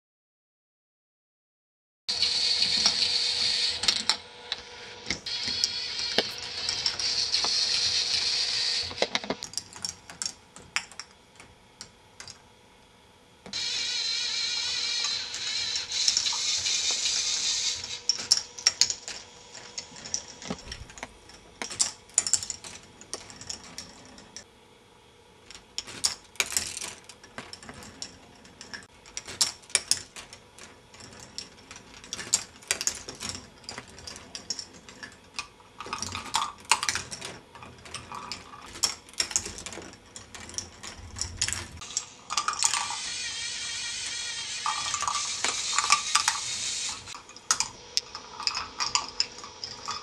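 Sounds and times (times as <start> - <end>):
plastic balls clattering on tracks: 25.5 - 50.0.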